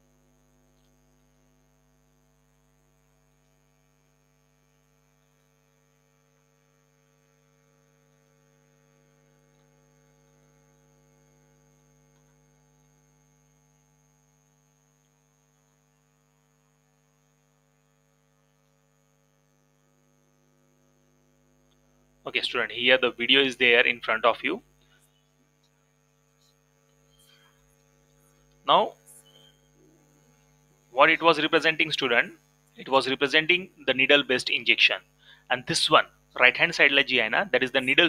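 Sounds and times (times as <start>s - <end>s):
faint electrical hum: 0.0s - 38.0s
faint high steady tone: 22.3s - 38.0s.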